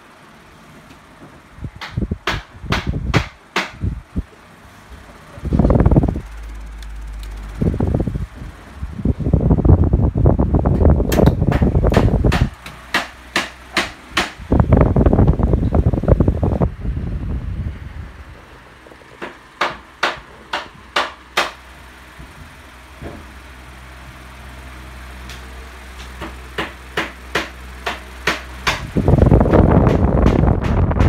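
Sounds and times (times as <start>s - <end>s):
fan airflow on microphone: 0.0s - 31.0s
fan motor hum: 0.0s - 31.0s
sharp clicks: 6.0s - 7.8s.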